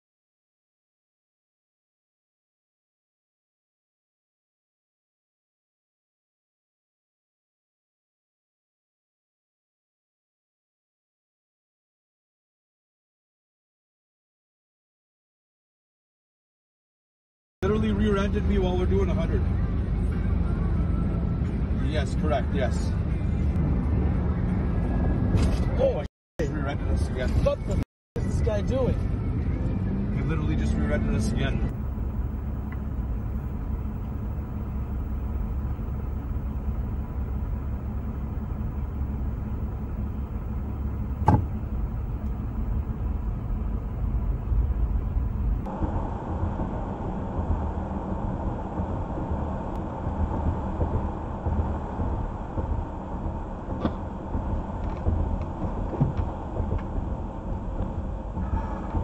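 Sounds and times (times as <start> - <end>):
car engine rumble: 17.6 - 59.0
road noise inside car: 17.6 - 59.0.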